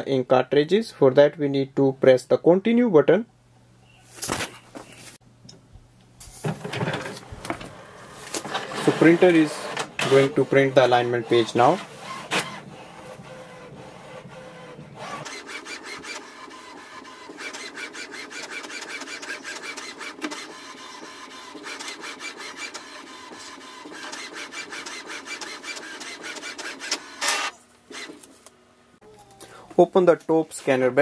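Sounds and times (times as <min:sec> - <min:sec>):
printer humming: 0:06.4 - 0:28.3
print carriage clicking rapidly: 0:08.3 - 0:27.4.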